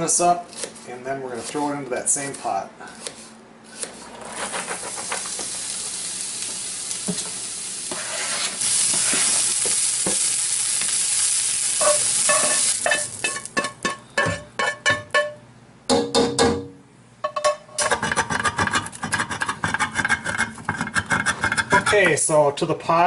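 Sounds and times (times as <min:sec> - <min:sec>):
onion sizzling in frying pan: 0:04.4 - 0:14.0
spatula scraping and clinking pan: 0:11.8 - 0:15.4.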